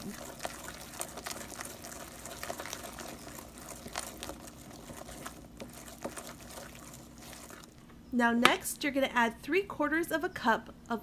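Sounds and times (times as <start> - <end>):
whisk beating batter in bowl: 0.0 - 7.8.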